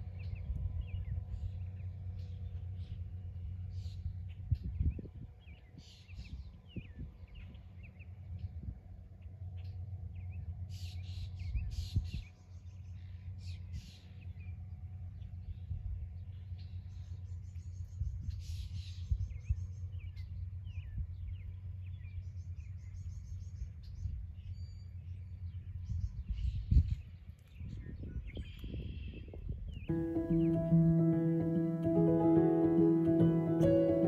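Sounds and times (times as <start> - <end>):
steady low rumble: 0.0 - 18.3
songbirds chirping and trilling: 0.0 - 34.0.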